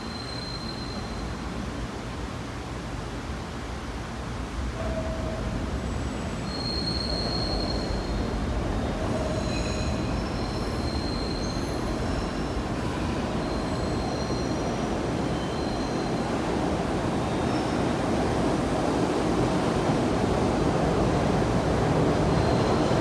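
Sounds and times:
steel wheels rumbling on rail: 4.4s - 23.0s
high-pitched wheel squeals: 6.1s - 8.3s, 9.2s - 12.6s, 13.3s - 16.3s.

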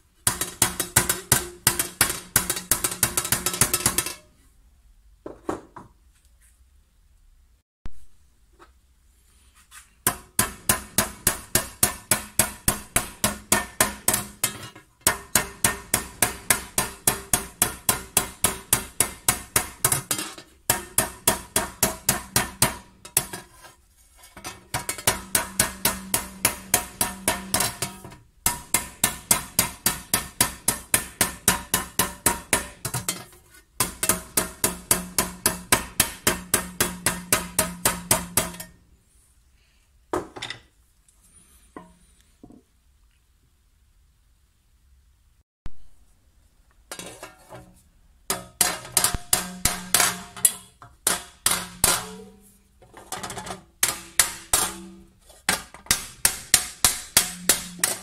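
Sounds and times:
hammer striking copper tray: 0.2s - 4.3s, 10.0s - 23.6s, 24.4s - 38.8s, 48.3s - 52.5s, 53.2s - 58.0s.

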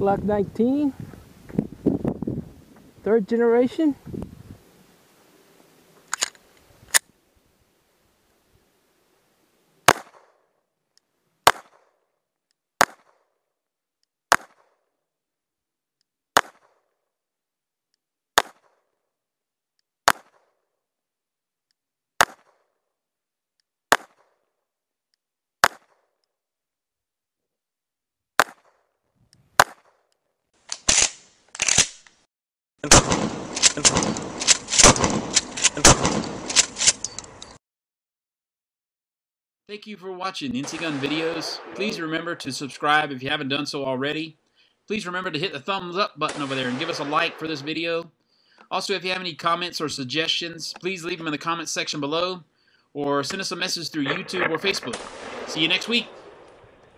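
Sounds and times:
rapid dull gunshot cracks: 9.9s - 10.3s, 11.4s - 11.9s, 12.8s - 13.2s, 32.9s - 36.8s, 54.1s - 56.9s
pistol shots: 9.9s - 10.4s, 11.4s - 12.0s, 16.4s - 16.8s, 18.4s - 18.8s, 32.9s - 37.0s, 40.6s - 42.2s, 46.3s - 47.6s, 54.0s - 56.9s.

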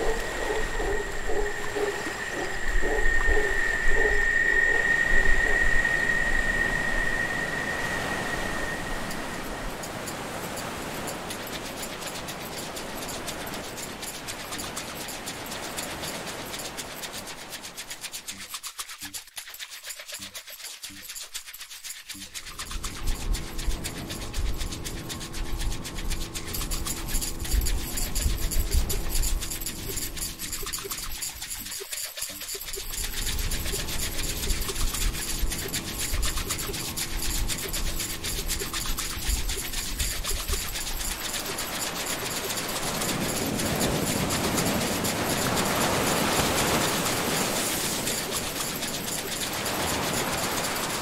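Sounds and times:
rapid mechanical clicking: 0.0s - 3.6s, 8.6s - 51.0s
ocean surf washing in: 0.0s - 17.7s, 41.1s - 51.0s
boat motor running: 0.0s - 18.4s, 22.2s - 51.0s.

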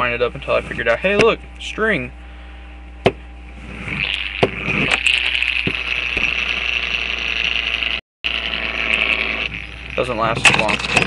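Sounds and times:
gyroscope whirring: 3.6s - 11.0s.

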